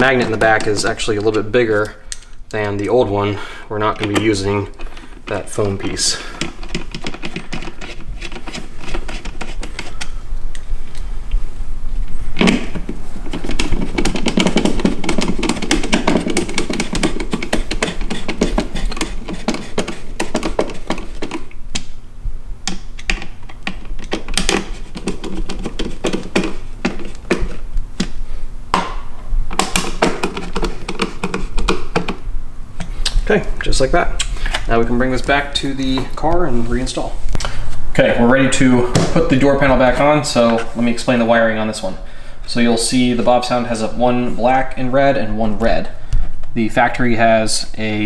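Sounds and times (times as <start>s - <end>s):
tool tapping on plastic panel: 13.4s - 21.4s, 29.6s - 32.2s.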